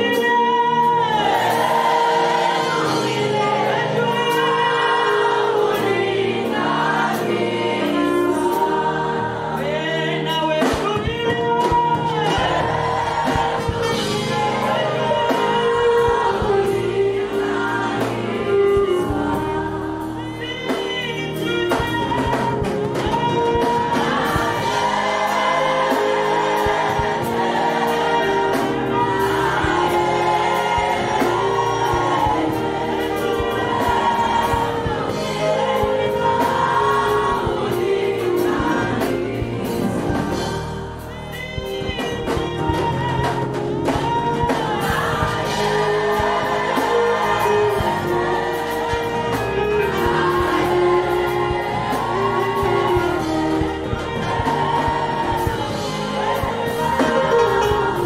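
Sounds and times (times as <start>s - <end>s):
live band keyboards and guitars: 0.0s - 58.0s
voices singing along: 0.0s - 58.0s
woman singing into microphone: 9.6s - 12.6s, 13.8s - 24.7s, 41.1s - 46.2s.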